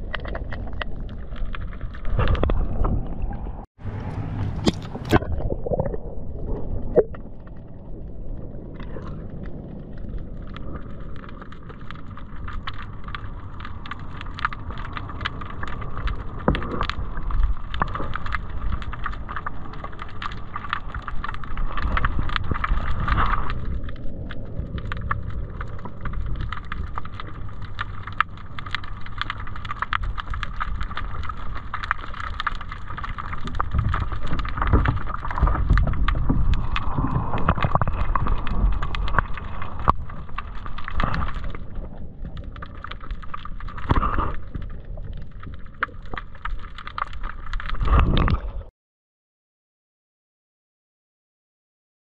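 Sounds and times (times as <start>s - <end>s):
sharp clicks and crackles: 0.0s - 48.7s
underwater rumble of moving water: 0.0s - 48.7s.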